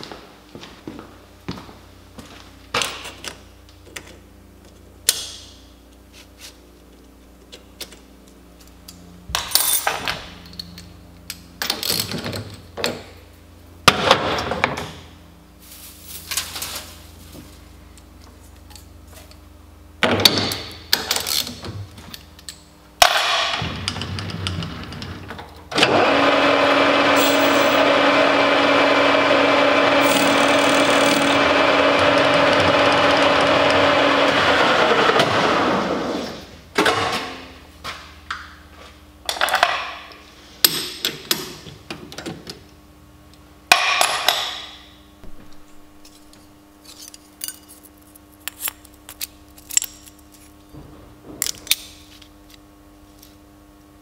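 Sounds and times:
lathe spindle whine: 25.8s - 36.1s.

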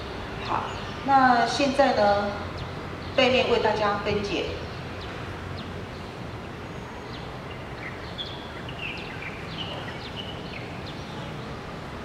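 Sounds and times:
steady ambient background noise: 0.0s - 12.0s
small birds chirping: 4.6s - 11.6s.

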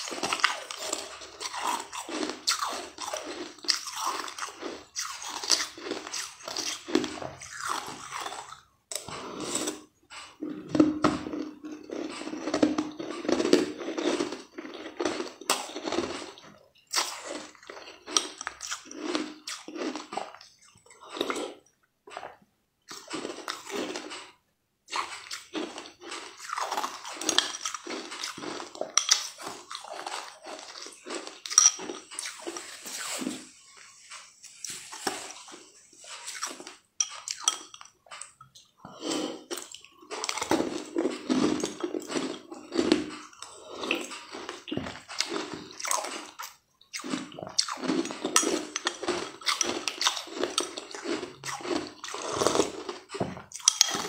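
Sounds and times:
wet slurping and chewing: 0.0s - 54.0s.

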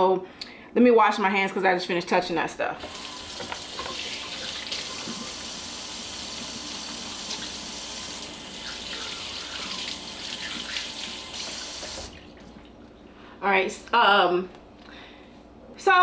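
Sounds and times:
faucet running into sink: 2.8s - 12.7s.

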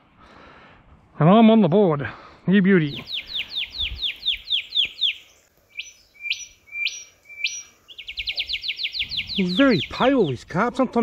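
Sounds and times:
wild birds calling: 2.8s - 11.0s.

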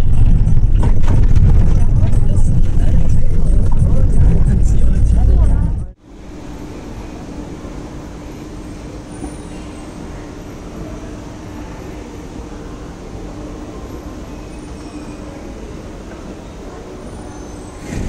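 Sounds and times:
escalator hum and rumble: 0.0s - 18.0s.

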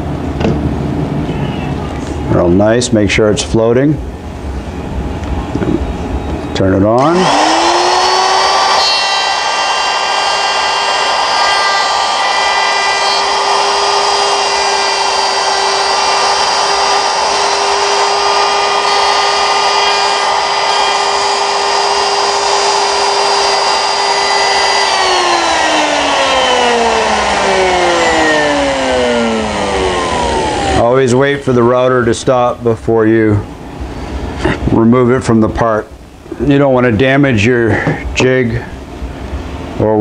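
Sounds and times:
router motor whining: 7.0s - 31.4s.

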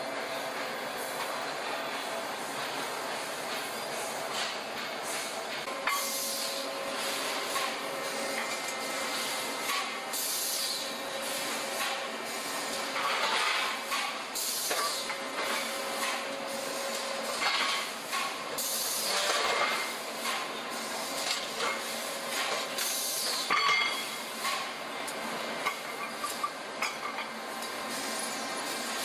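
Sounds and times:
machine hiss: 5.0s - 24.7s.

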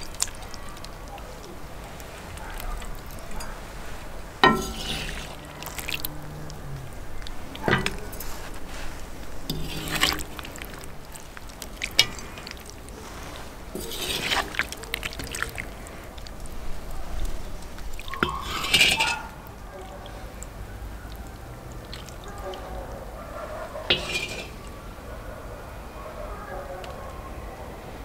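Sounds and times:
wet slopping of stew: 0.0s - 24.9s
metal ladle clinking against pot: 1.9s - 13.0s, 13.7s - 15.7s, 18.0s - 20.3s, 23.8s - 24.7s.

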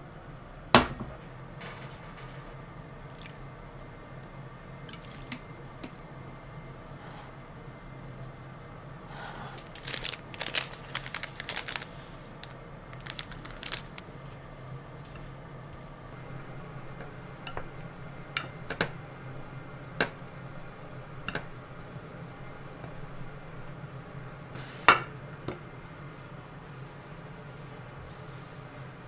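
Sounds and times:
plastic packet crinkling: 9.6s - 14.4s.

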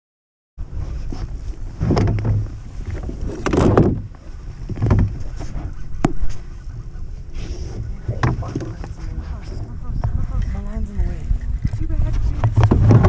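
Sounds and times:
wind on microphone: 0.6s - 13.0s
water slapping against boat hull: 1.7s - 6.5s, 7.8s - 9.3s, 11.4s - 13.0s.

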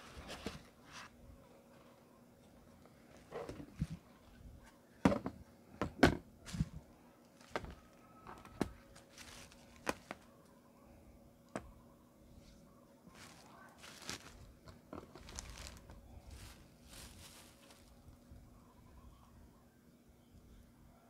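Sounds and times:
plastic wrap rustling: 7.4s - 10.3s, 13.1s - 18.2s.

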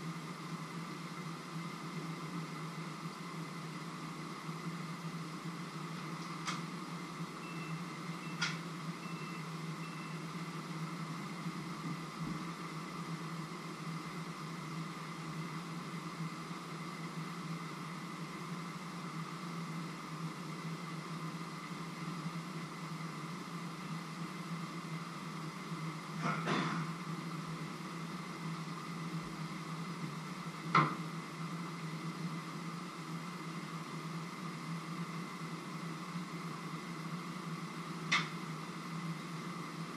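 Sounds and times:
faint high beeps: 7.4s - 10.3s.

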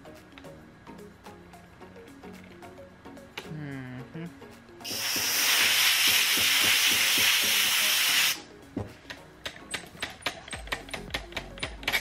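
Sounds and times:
compressed air hissing: 4.8s - 8.4s.

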